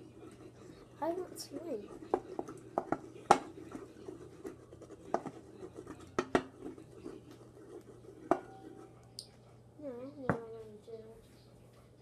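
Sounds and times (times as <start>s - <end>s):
spoon scraping in a bowl: 0.0s - 9.0s.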